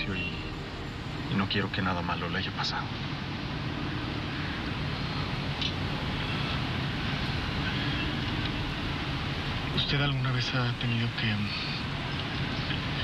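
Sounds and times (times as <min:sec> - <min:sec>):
car road and engine noise: 0:00.0 - 0:13.0.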